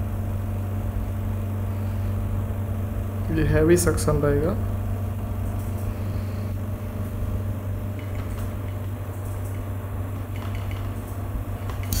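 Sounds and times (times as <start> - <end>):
suction pump motor humming: 11.5 - 12.0.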